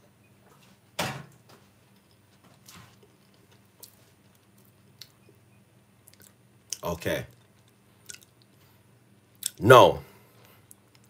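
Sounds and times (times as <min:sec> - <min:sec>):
faint chewing: 0:01.7 - 0:05.4, 0:06.0 - 0:08.8, 0:10.4 - 0:11.0
small mouth clicks: 0:06.1 - 0:08.6.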